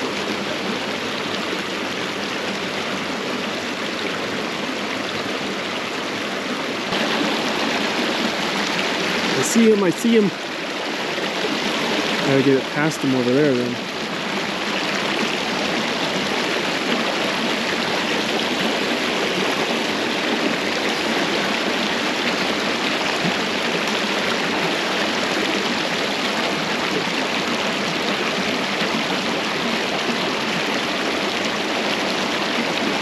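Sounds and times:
creek water rushing: 0.0s - 33.0s.

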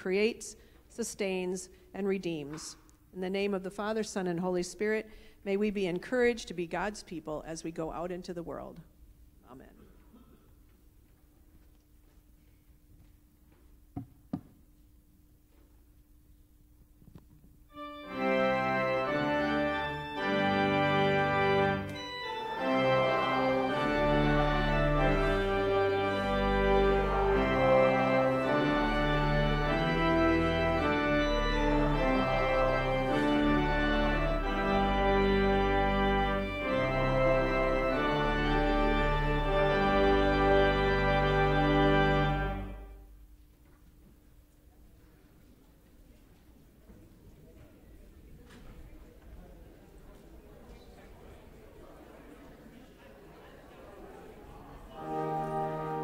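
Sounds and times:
church organ playing chords: 17.7s - 43.3s, 54.8s - 56.0s.

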